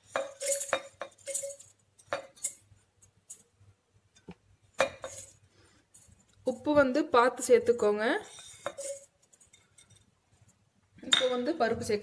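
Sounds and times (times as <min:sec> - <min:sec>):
spices clinking into steel jar: 0:00.0 - 0:03.6, 0:04.8 - 0:06.7, 0:07.4 - 0:10.1.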